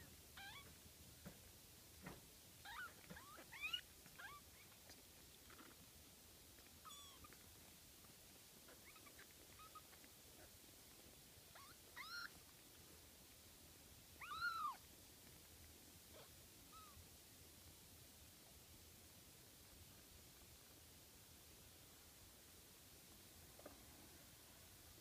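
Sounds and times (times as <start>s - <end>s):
kittens mewing: 11.5s - 12.4s, 14.2s - 14.8s.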